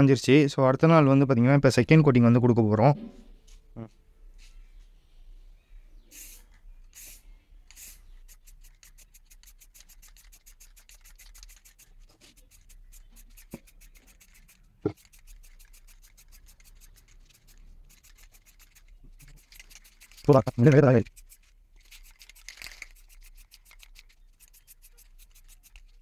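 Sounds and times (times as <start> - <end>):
spray can hissing: 6.0 - 26.0
spray can ball rattling: 6.1 - 26.0.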